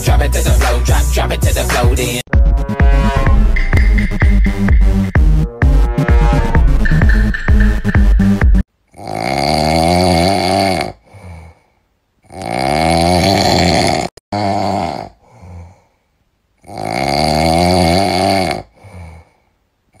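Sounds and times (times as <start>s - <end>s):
loud snoring: 8.9s - 11.5s, 12.2s - 15.7s, 16.6s - 19.2s.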